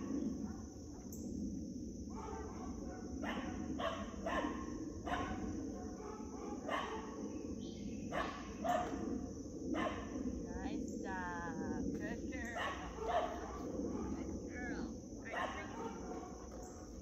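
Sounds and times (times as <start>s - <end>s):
dog barking: 2.1s - 7.2s, 8.1s - 9.0s, 9.7s - 10.1s, 12.5s - 14.4s, 15.3s - 17.0s.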